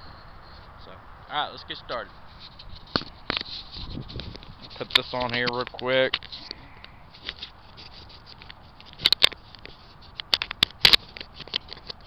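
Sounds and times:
camera handling clicks and rubbing: 0:01.9 - 0:12.0.

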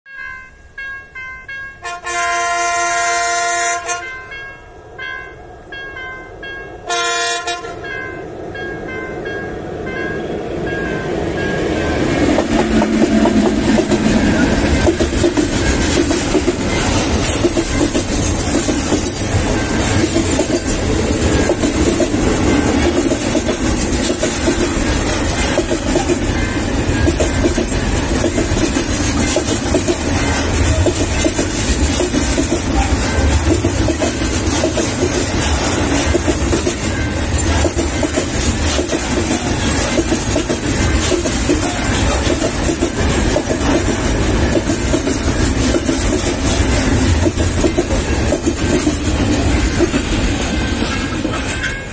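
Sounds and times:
freight train wheels rumbling: 0:05.0 - 0:51.9
wheels clacking over rail joints: 0:11.4 - 0:51.9.

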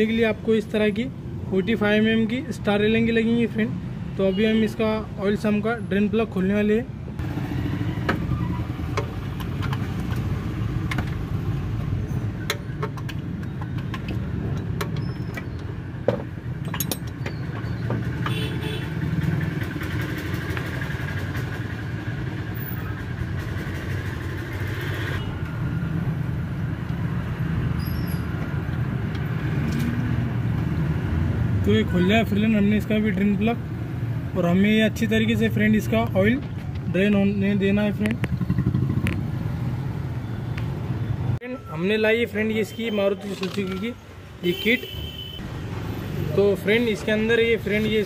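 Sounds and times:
vehicle rumble: 0:07.0 - 0:41.7.

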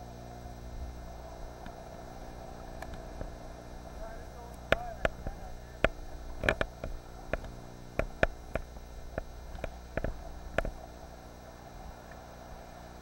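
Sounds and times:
steady low hum: 0:00.0 - 0:13.0
sharp irregular clicks and knocks: 0:04.5 - 0:10.8.

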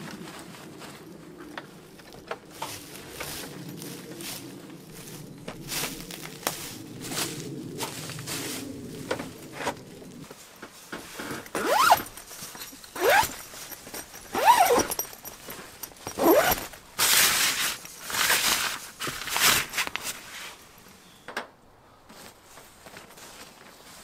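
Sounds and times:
fabric rustling: 0:00.0 - 0:20.9
zip zipping: 0:11.2 - 0:18.5.

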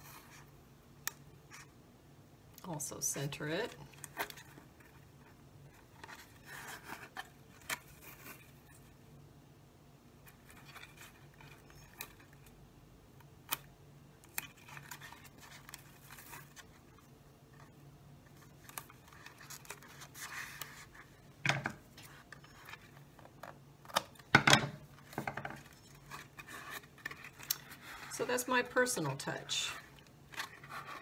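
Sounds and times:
tape rubbing and rustling: 0:03.8 - 0:09.0, 0:14.2 - 0:24.3, 0:24.9 - 0:28.5, 0:29.7 - 0:31.0.

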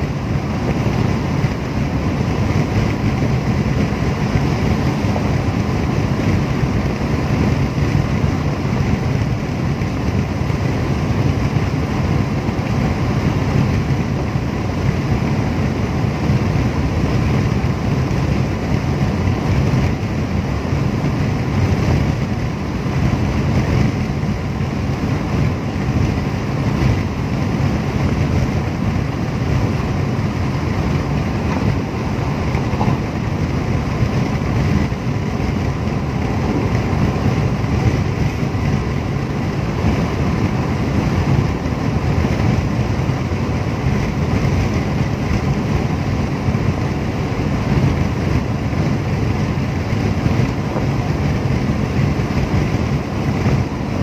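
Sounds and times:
car cabin road rumble: 0:00.0 - 0:54.0.

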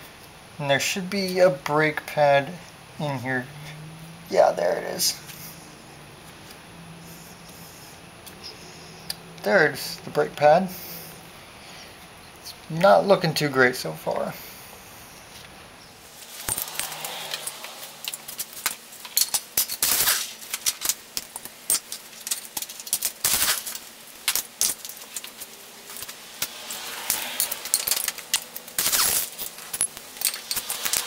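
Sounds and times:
air impact wrench rattling: 0:16.2 - 0:31.0
metallic clinks and clanks: 0:16.4 - 0:23.2, 0:27.0 - 0:31.0.

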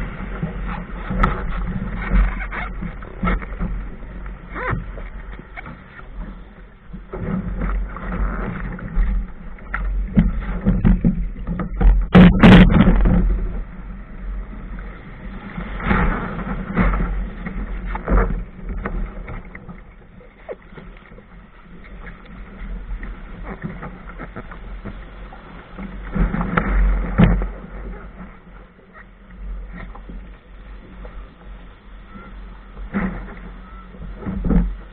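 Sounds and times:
wind buffeting microphone: 0:00.0 - 0:20.4
surf: 0:00.0 - 0:34.9
water splashing: 0:00.0 - 0:34.9.

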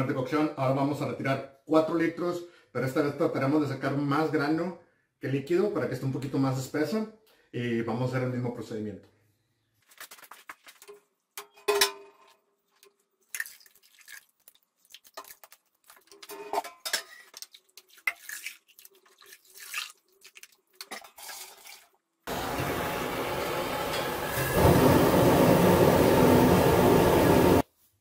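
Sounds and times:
wet mash dripping and splashing: 0:09.8 - 0:11.2, 0:12.2 - 0:22.2
metal scoop knocking steel pots: 0:11.4 - 0:12.3
propane burner hiss: 0:22.3 - 0:27.6.

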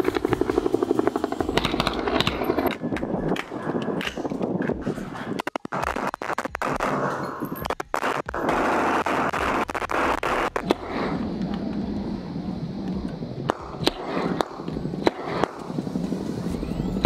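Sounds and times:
rifle gunfire: 0:00.0 - 0:02.8, 0:05.7 - 0:11.2, 0:13.5 - 0:15.7
steady low rumble: 0:00.0 - 0:17.0.

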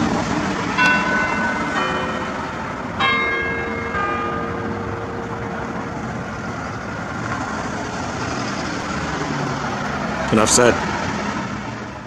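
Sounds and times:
street traffic noise: 0:00.0 - 0:12.0
tower bell ringing: 0:00.5 - 0:09.4.

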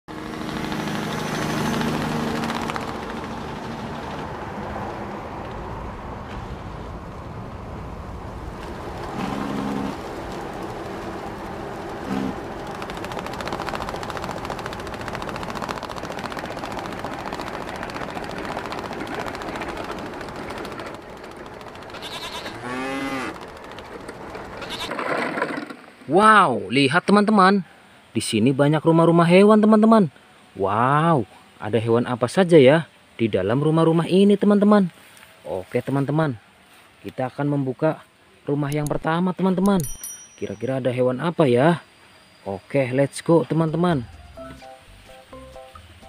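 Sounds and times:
outdoor background noise: 0:00.0 - 0:46.0
animal bleating: 0:21.9 - 0:23.4, 0:24.6 - 0:24.9.

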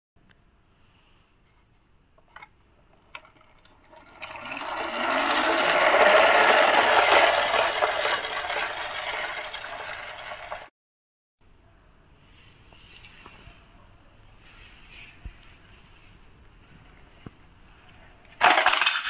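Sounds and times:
toy truck rattling on tile floor: 0:02.4 - 0:10.7, 0:18.4 - 0:19.0.

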